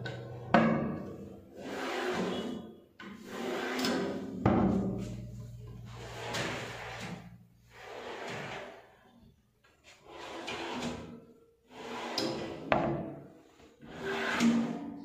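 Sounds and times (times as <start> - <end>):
drawers sliding on runners: 6.0 - 8.8.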